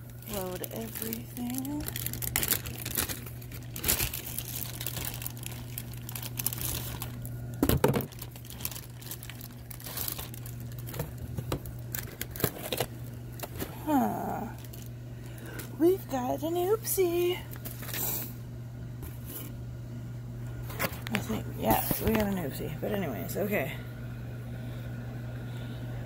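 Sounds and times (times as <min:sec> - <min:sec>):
plastic wrap crinkling: 0:00.0 - 0:15.9.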